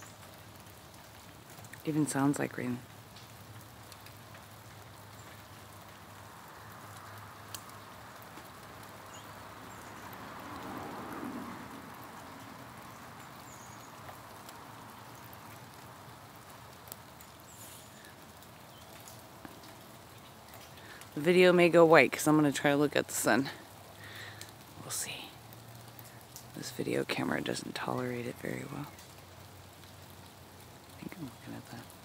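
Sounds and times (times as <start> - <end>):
meltwater dripping from branches: 0.0 - 32.0.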